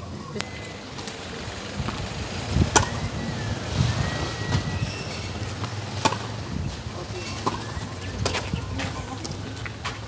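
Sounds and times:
tennis ball struck by racket: 0:02.7 - 0:03.0, 0:05.6 - 0:06.4, 0:07.3 - 0:08.5.

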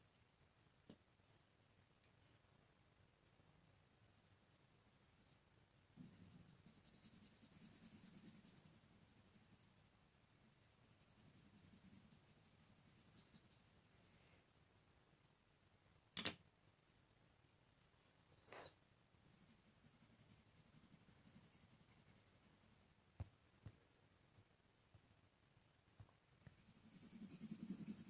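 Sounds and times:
pencil scratching on paper: 0:06.0 - 0:13.8, 0:19.3 - 0:22.9, 0:26.6 - 0:28.0.

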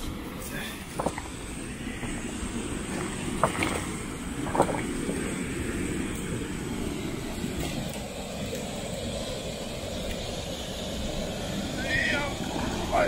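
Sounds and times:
water rushing through sluice gates: 0:00.0 - 0:10.2.

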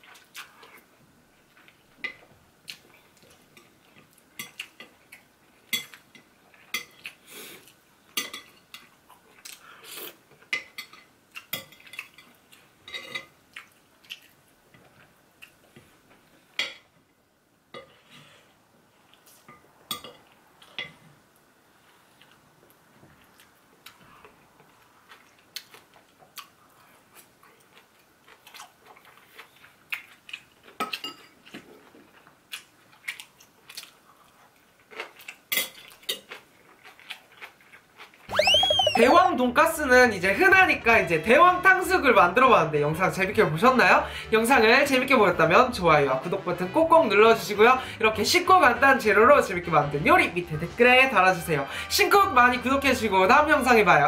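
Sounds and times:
chewing: 0:08.8 - 0:10.5, 0:11.3 - 0:16.2, 0:21.9 - 0:38.6.

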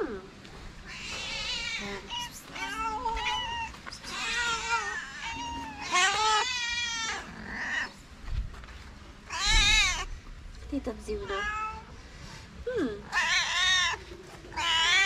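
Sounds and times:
cats meowing: 0:00.8 - 0:08.0, 0:09.2 - 0:10.2, 0:11.2 - 0:11.9, 0:13.0 - 0:15.0.

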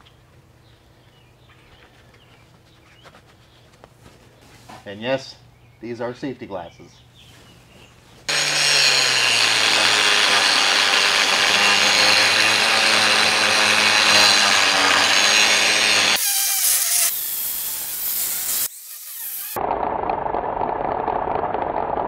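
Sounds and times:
angle grinder cutting steel: 0:08.3 - 0:19.6.

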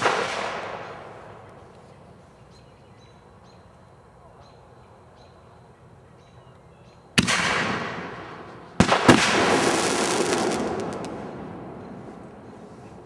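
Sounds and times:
firework bangs: 0:00.0 - 0:01.4, 0:07.2 - 0:12.3
faint firework crackles: 0:00.0 - 0:02.4, 0:07.2 - 0:13.0.

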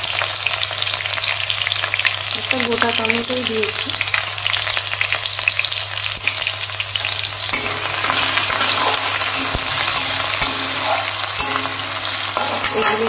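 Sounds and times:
vegetables sizzling in hot oil: 0:00.0 - 0:13.0
spatula scraping metal pan: 0:07.5 - 0:13.0.

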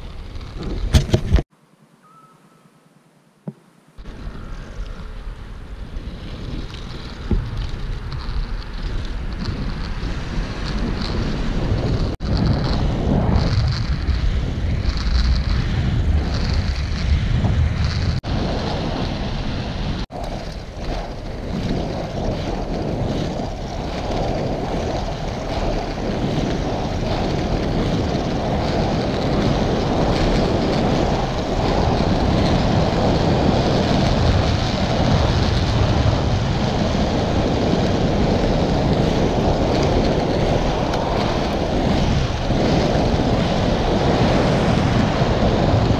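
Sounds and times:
skate wheels rolling on asphalt: 0:00.0 - 0:01.5, 0:03.4 - 0:45.9
wind buffeting microphone: 0:00.0 - 0:01.5, 0:04.0 - 0:45.9.

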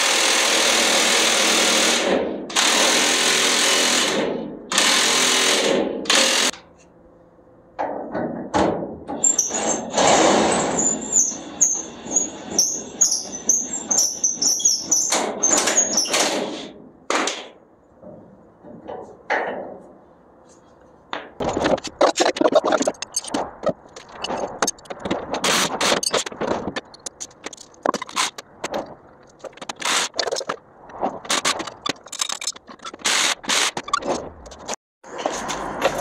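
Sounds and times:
metal tools clinking and scraping: 0:31.3 - 0:33.1.

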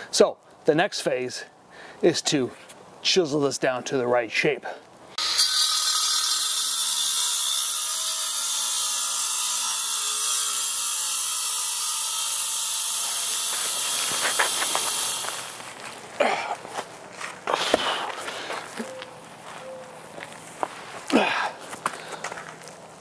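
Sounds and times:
angle grinder cutting stone: 0:05.2 - 0:15.6.

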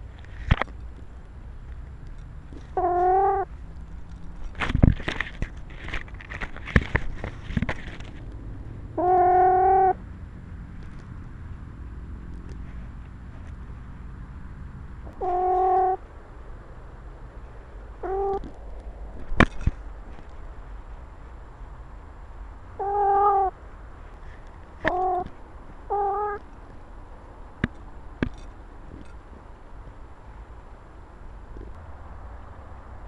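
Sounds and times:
cat meowing: 0:18.0 - 0:18.4, 0:22.8 - 0:23.5, 0:24.8 - 0:25.3, 0:25.9 - 0:26.4.

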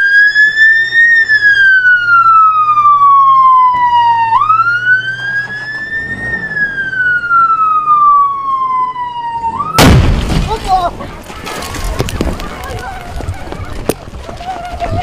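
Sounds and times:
ambulance siren wailing: 0:00.0 - 0:09.9.

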